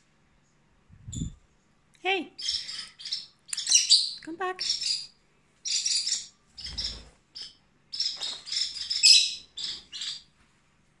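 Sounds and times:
parrot chirping: 2.4 - 10.3.

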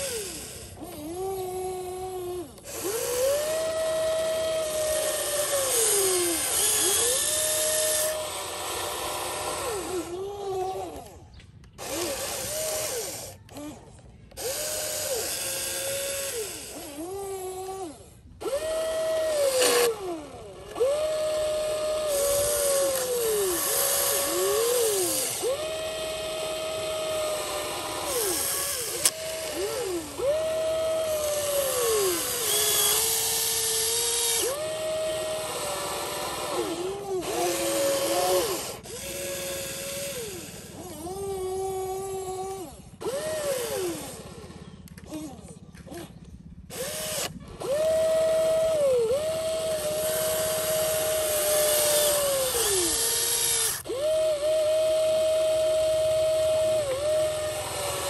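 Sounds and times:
small electric motors whining: 0.0 - 58.0.

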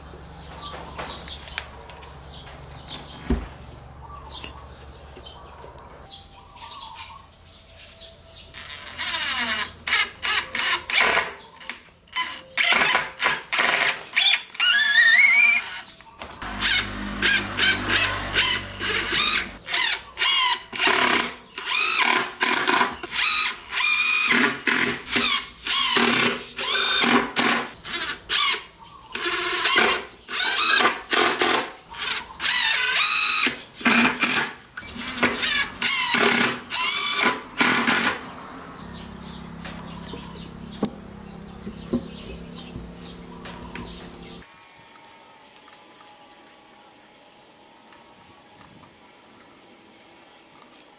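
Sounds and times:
cordless drill motor whine: 14.6 - 19.6.

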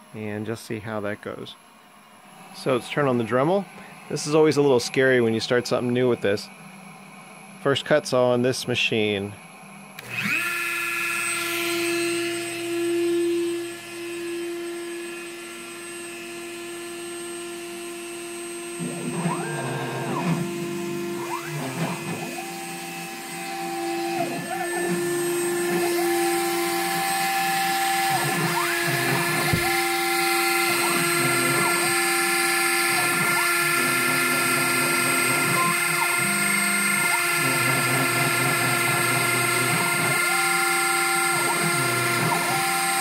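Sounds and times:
rotary tool whining: 10.0 - 43.0
stepper motors whining: 10.0 - 43.0.

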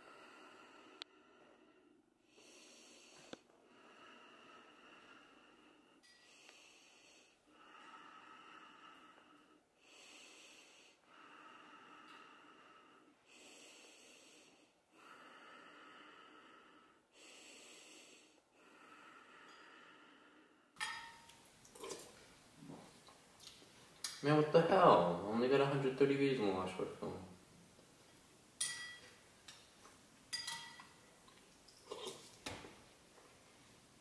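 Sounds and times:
person breathing heavily: 0.0 - 20.8.

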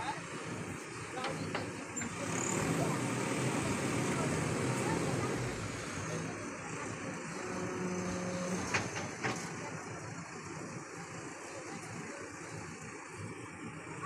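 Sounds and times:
diesel engine running: 0.0 - 14.0
hydraulics raising bucket: 0.5 - 9.9.

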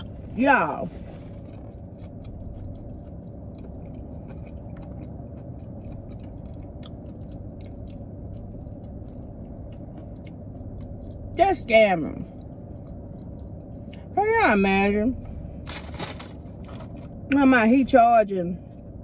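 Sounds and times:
close-up chewing: 0.0 - 11.4, 12.1 - 14.2
car cabin low hum: 0.0 - 19.0.

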